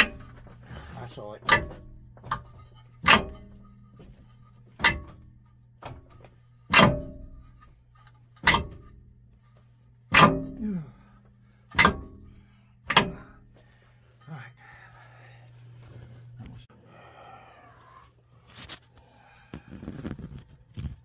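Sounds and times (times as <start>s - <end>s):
heavy strikes on metal: 0.0s - 6.1s, 6.7s - 7.8s, 8.4s - 9.1s, 10.1s - 13.6s
steady low hum: 0.0s - 20.6s.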